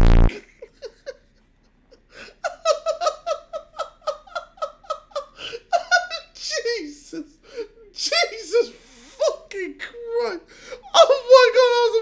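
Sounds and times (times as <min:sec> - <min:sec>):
man laughing uncontrollably: 0:00.3 - 0:01.2, 0:02.4 - 0:06.7.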